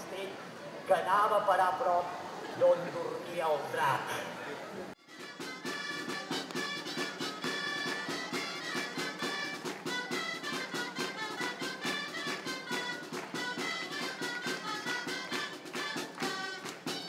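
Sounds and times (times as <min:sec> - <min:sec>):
brass melody: 0:05.0 - 0:17.0.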